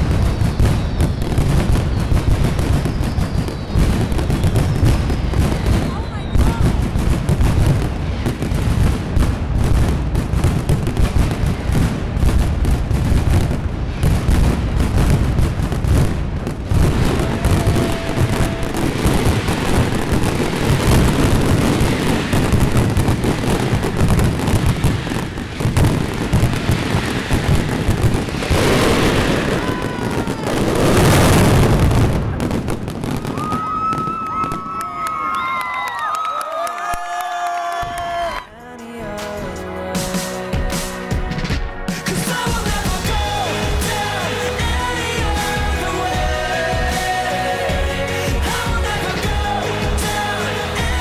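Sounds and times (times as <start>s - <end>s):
rapid firecracker bangs: 0.0s - 36.0s.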